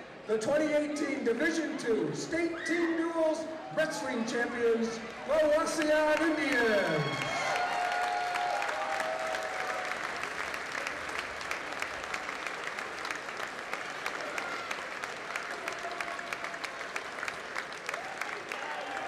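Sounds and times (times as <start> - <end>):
crowd applauding: 5.3 - 19.0.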